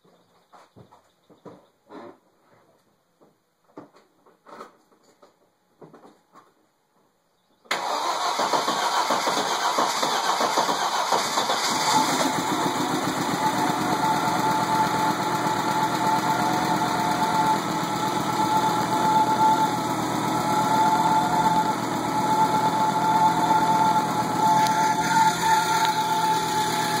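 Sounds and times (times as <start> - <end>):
car engine starting and idling: 7.7 - 27.0
steady whine: 11.6 - 27.0.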